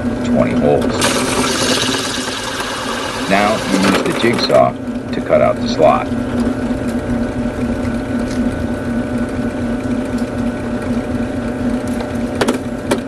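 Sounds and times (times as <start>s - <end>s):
drill press humming: 0.0s - 6.2s
drill bit boring through plastic: 1.0s - 4.5s.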